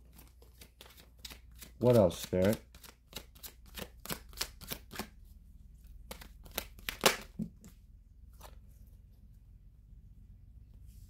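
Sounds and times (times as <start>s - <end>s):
cards being shuffled: 0.0s - 5.2s, 5.9s - 8.6s
cards snapping and tapping down: 0.1s - 5.1s, 6.1s - 7.7s.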